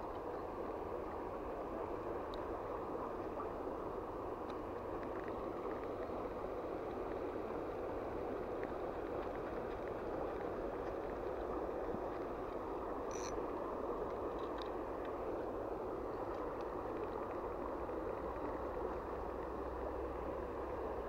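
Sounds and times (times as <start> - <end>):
shallow stream flowing: 0.0 - 21.0
faint ticks: 2.2 - 2.5, 8.5 - 13.4, 14.0 - 15.2, 16.2 - 19.6.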